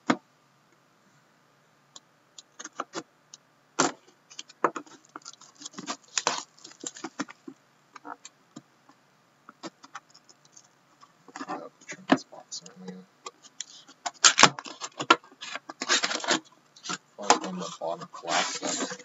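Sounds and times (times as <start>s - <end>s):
plastic shrink wrap crinkling: 4.3s - 7.5s, 13.6s - 19.0s.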